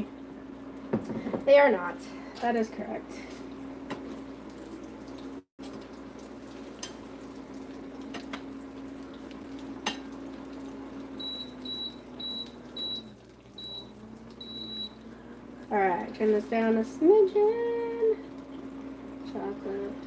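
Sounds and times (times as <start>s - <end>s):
cooktop hum: 0.0s - 20.0s
food sizzling in hot oil: 3.2s - 20.0s
cooktop control beeps: 11.0s - 15.1s.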